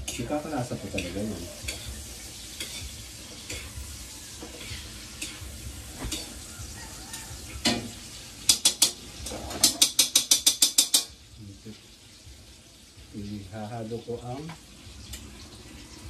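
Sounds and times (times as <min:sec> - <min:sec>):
metal utensil scraping wok: 0:00.0 - 0:11.2
food sizzling in a wok: 0:00.0 - 0:16.0.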